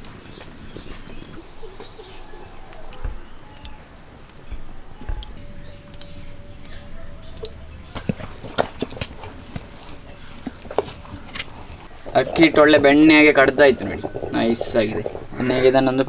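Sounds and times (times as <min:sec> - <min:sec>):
faint ticks: 0:00.0 - 0:16.0
short bird calls: 0:01.4 - 0:08.4
high-pitched insect trill: 0:01.4 - 0:08.5.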